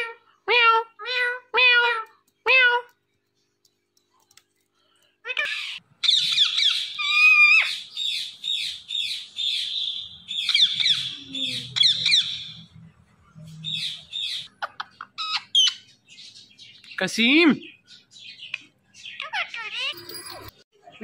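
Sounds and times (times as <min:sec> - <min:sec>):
parakeet shrill calls: 0:05.3 - 0:12.6.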